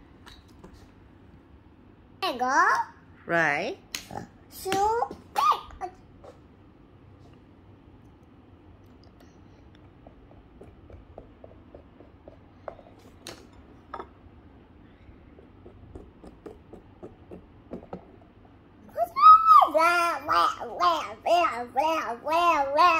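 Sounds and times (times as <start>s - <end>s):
knocks on tabletop: 15.4s - 18.2s.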